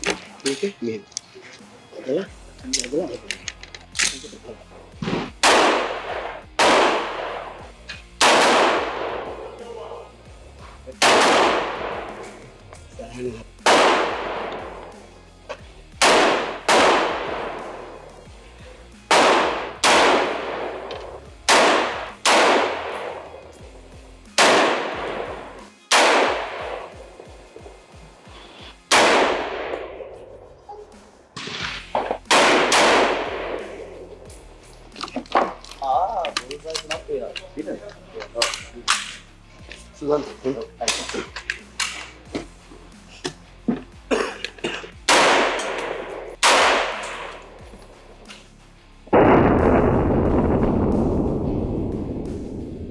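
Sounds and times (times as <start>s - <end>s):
rifle shots with ringing echo: 5.0s - 9.6s, 11.0s - 12.4s, 13.6s - 15.0s, 16.0s - 18.2s, 19.1s - 23.6s, 24.4s - 27.3s, 28.9s - 30.4s, 31.4s - 34.4s, 45.0s - 47.6s, 49.1s - 52.7s.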